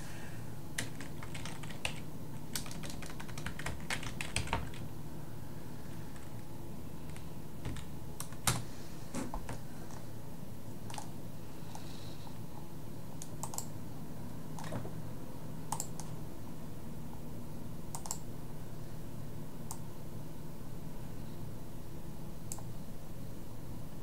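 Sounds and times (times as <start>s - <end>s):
steady low hum: 0.0s - 24.0s
computer keyboard typing: 0.8s - 4.9s, 7.1s - 8.6s, 10.9s - 11.1s, 13.2s - 13.7s, 15.7s - 16.1s, 18.0s - 18.2s.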